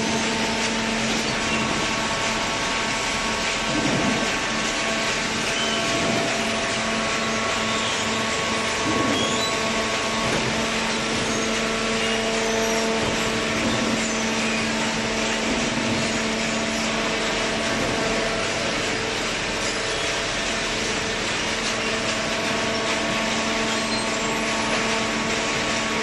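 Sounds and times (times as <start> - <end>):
baler machinery humming and whining: 0.0 - 26.0.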